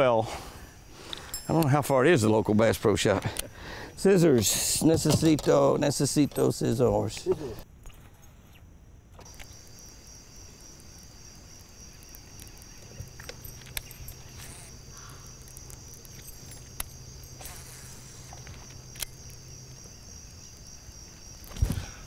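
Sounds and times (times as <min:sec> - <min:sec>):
high-pitched insect drone: 0:09.2 - 0:21.8.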